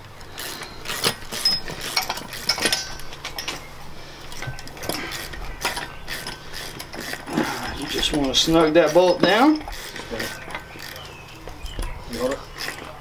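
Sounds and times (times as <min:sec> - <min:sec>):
metal tools clinking: 0:00.3 - 0:13.0
ratchet wrench clicking: 0:05.1 - 0:11.0.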